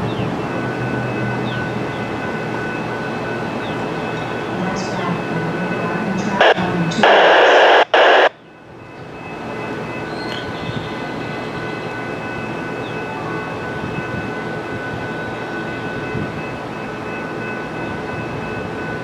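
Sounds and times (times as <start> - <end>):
steady background noise: 0.0 - 19.0
scanner radio static burst: 6.4 - 8.4.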